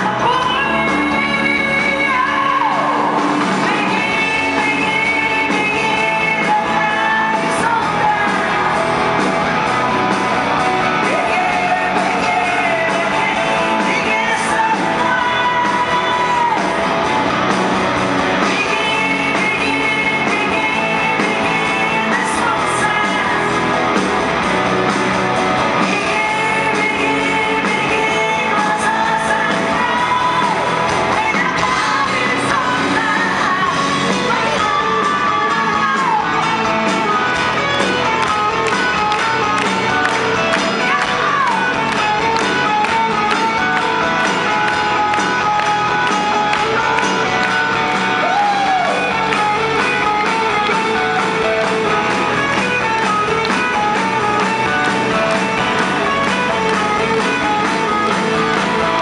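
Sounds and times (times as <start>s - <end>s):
woman singing into microphone: 0.0s - 8.8s, 10.9s - 16.8s, 18.4s - 23.7s, 25.8s - 59.0s
drums: 0.0s - 59.0s
electric guitars: 0.0s - 59.0s
keyboard: 0.0s - 59.0s.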